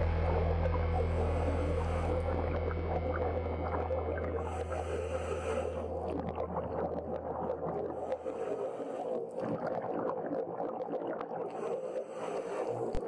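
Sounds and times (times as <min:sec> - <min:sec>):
low hum: 0:00.0 - 0:08.2
underwater crackling and clicks: 0:00.0 - 0:13.0.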